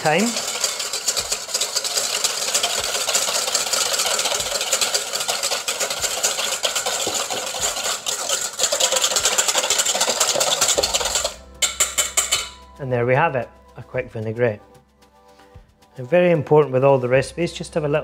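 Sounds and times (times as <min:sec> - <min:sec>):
whisk beating in metal bowl: 0:00.0 - 0:12.7.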